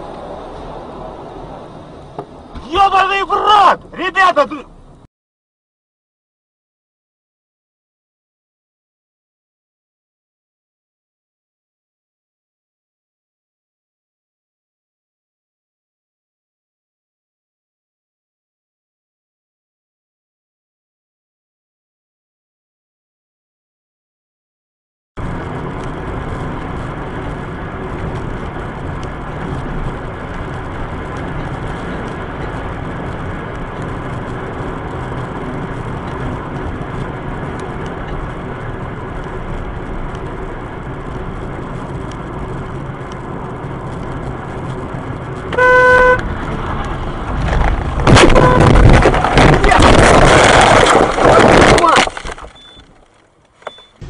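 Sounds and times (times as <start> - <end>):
car road and engine noise: 0.0 - 5.1, 25.2 - 54.0
car horn: 45.5 - 46.2, 48.2 - 48.8
car crash and windshield shattering: 47.4 - 53.8.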